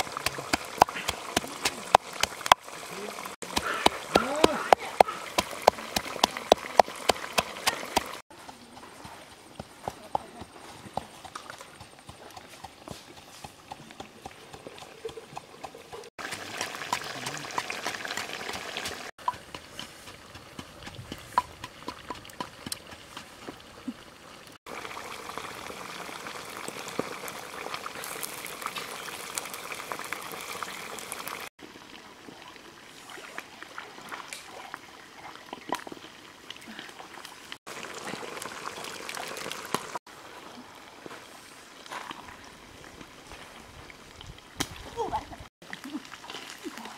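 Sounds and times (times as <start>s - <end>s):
steady cooking hiss: 0.0s - 4.2s.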